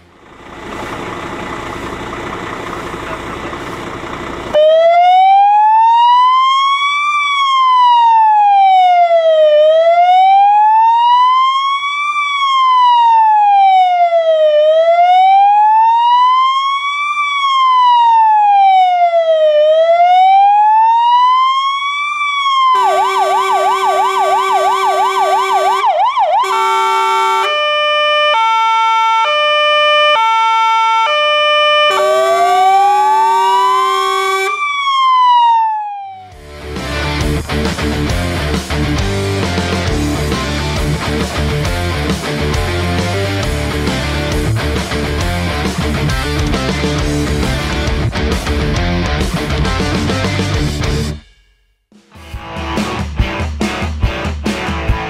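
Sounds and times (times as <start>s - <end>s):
electronic siren wailing and yelping: 4.6s - 36.4s.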